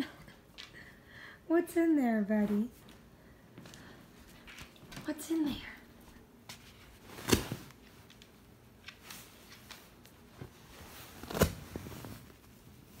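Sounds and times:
fabric rustling: 6.5 - 13.0.

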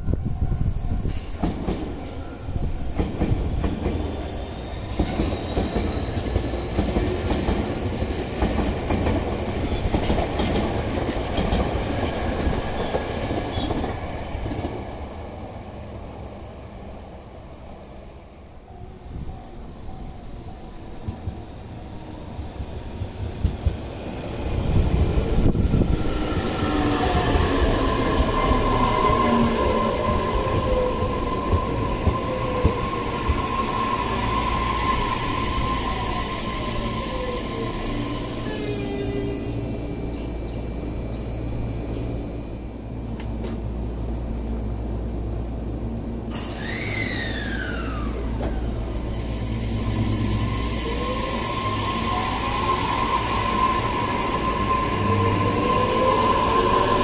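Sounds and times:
electric train passing: 0.0 - 57.0
thin train whine: 0.0 - 57.0
train motor whine: 46.3 - 57.0.

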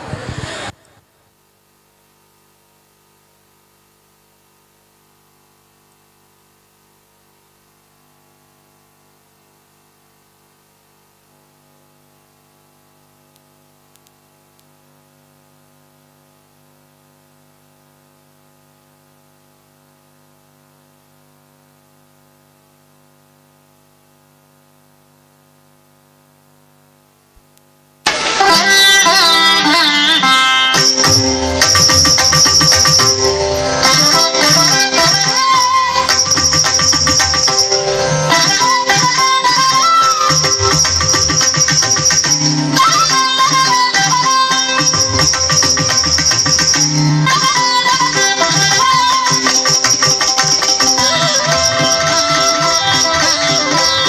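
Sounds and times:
held tones from sound system: 28.1 - 54.0.

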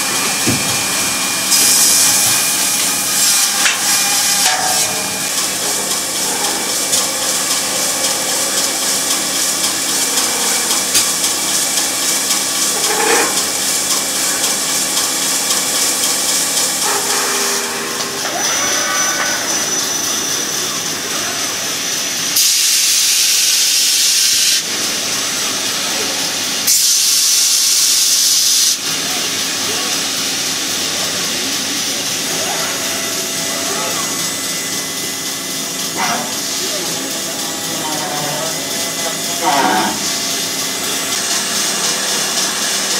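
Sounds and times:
steady machine tones: 0.0 - 23.1, 30.9 - 42.9
hissing machine noise: 0.0 - 42.9.

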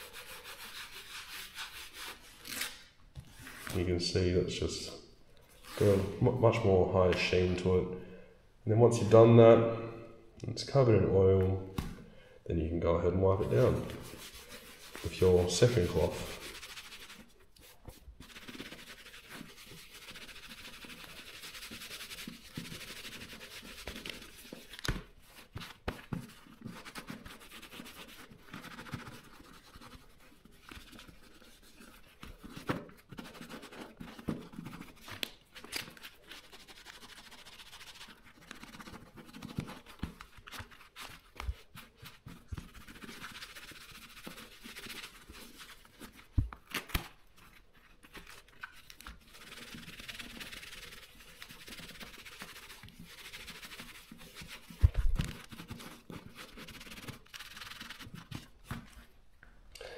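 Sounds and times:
cloth rubbing on leather glove: 0.0 - 3.9, 5.5 - 6.7, 13.4 - 59.2.

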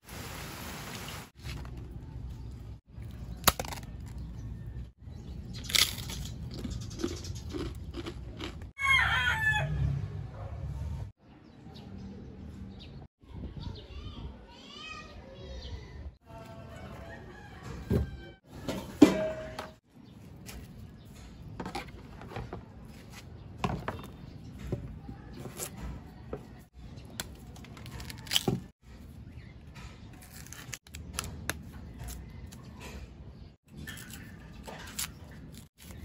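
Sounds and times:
knife scraping and tearing skin: 30.1 - 32.6.

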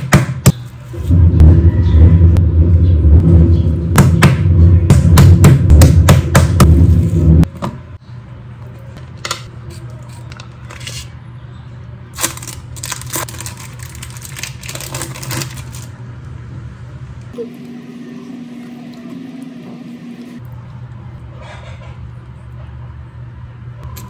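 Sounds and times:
plastic wrappers crinkling: 12.2 - 15.9.

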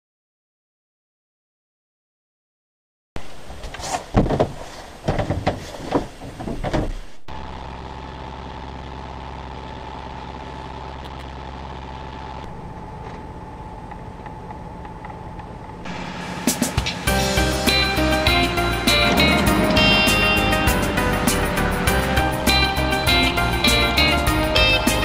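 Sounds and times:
knocks and clatters: 3.6 - 7.0
boat engine drone: 7.3 - 25.0.

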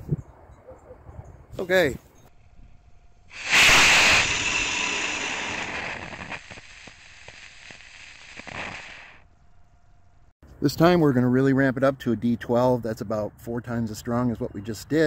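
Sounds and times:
rocket engine hissing: 3.3 - 9.2.

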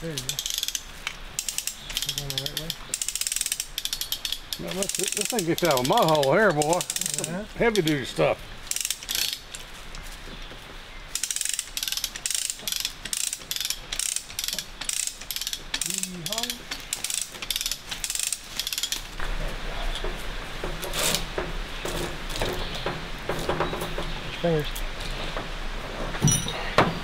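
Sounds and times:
sharp ratchet clicks: 0.0 - 8.0, 8.7 - 9.4, 11.1 - 19.2.

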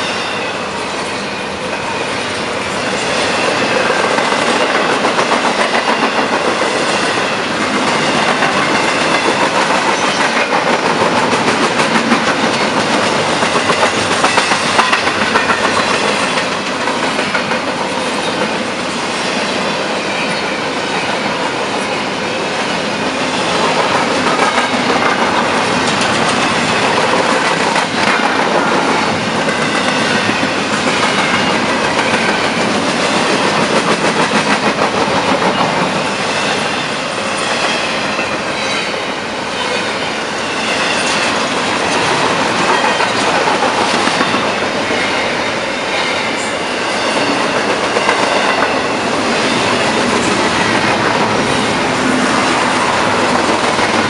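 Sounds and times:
train wheels clacking over rail joints: 2.6 - 21.8, 23.2 - 39.0, 40.6 - 54.0
freight cars rumbling and rattling: 23.3 - 38.7, 46.9 - 54.0.

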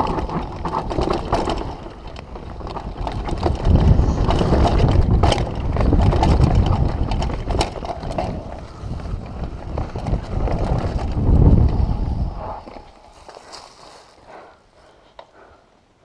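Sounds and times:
wind buffeting microphone: 0.0 - 13.4
bike rumbling over dirt trail: 0.0 - 14.3
bike clicks and rattles: 0.0 - 15.4.

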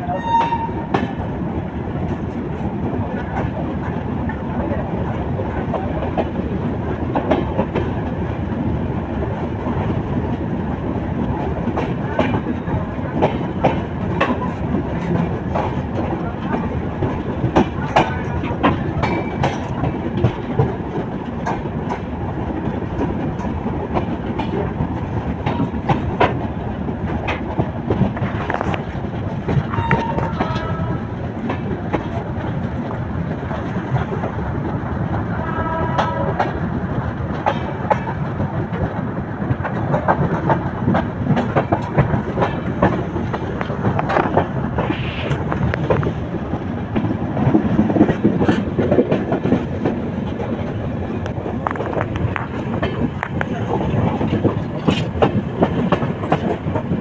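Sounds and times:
locomotive horn blast: 0.0 - 0.8, 29.8 - 31.0, 35.4 - 36.4
train wheels clattering over joints: 11.3 - 57.0.

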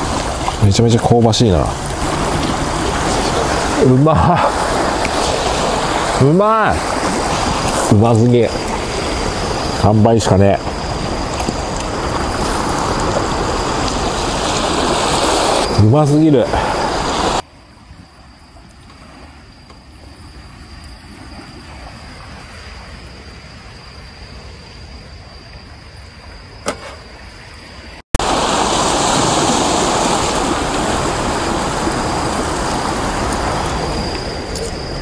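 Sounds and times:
sea waves on pebble shore: 0.0 - 17.4, 28.2 - 34.4.

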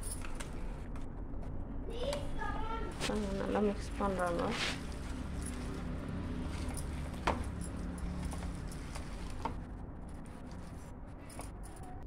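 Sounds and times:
hand mixing meat in a bowl: 3.0 - 10.0.

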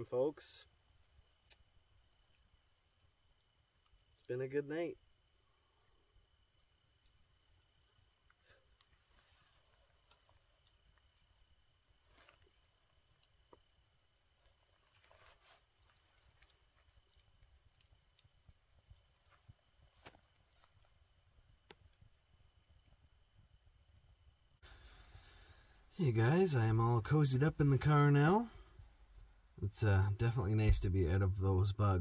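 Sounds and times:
crickets chirring: 0.0 - 32.0
faint clicks: 1.4 - 3.1, 5.5 - 9.0, 15.8 - 21.0.

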